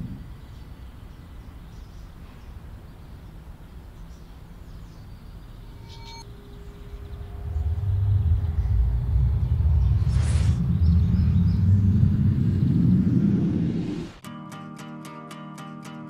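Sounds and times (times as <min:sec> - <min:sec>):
mid-pitched hum: 0:04.9 - 0:14.2
low rumbling noise: 0:05.1 - 0:14.2
short high whistle-like tone: 0:05.7 - 0:07.4.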